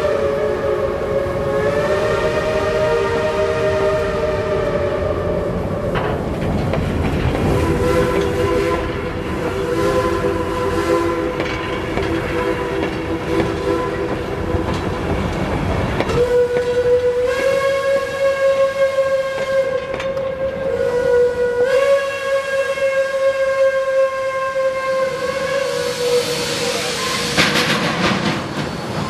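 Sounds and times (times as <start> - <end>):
steam locomotive whistles: 0.0 - 6.0, 7.4 - 29.0
train wheels clattering on rails: 5.5 - 20.8, 26.8 - 29.0.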